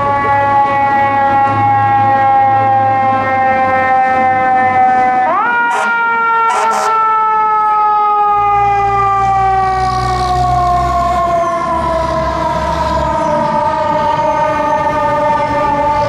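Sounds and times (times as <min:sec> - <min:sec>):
fire truck siren winding down: 0:00.0 - 0:16.0
truck engine rumbling: 0:07.5 - 0:16.0.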